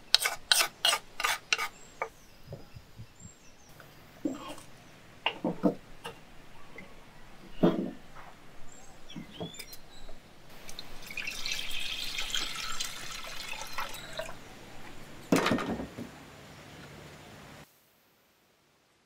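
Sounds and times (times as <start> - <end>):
water pouring into pot: 10.6 - 14.4.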